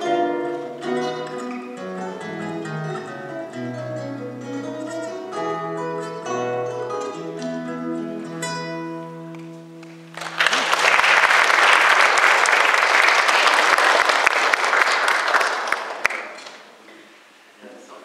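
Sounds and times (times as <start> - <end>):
classical guitars playing: 0.0 - 10.8
audience applause: 9.8 - 16.8.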